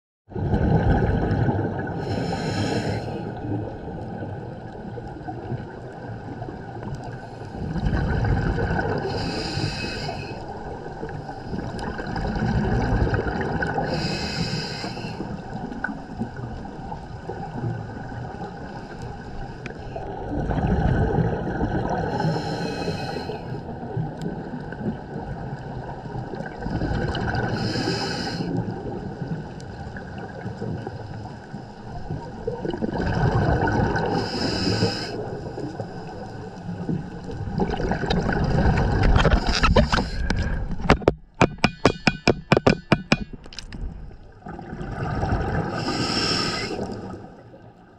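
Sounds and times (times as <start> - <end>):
exhaled bubbles rumbling: 0.3 - 14.2, 19.9 - 22.6, 23.6 - 27.8, 28.5 - 41.4, 43.3 - 47.8
regulator inhalation hiss: 2.1 - 3.3, 9.1 - 10.4, 13.9 - 15.2, 22.1 - 23.6, 27.6 - 28.5, 34.2 - 35.3, 45.8 - 46.9.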